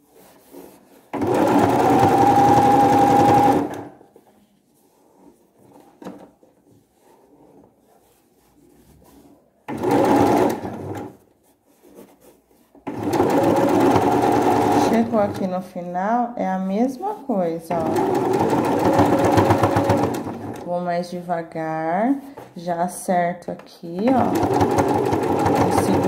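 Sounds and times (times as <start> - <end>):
electric sewing machine stitching: 1.1 - 3.9, 9.7 - 11.1, 12.9 - 15.4, 17.7 - 20.7, 24.0 - 26.0.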